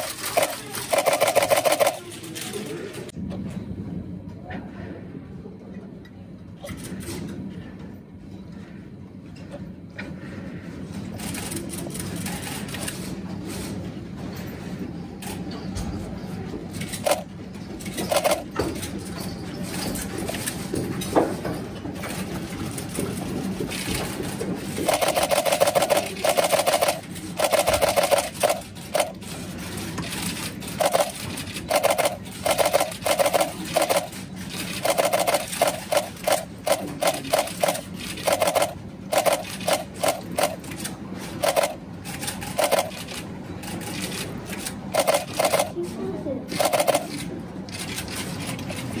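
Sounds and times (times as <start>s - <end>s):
camera shutter bursts: 45.0s - 45.7s.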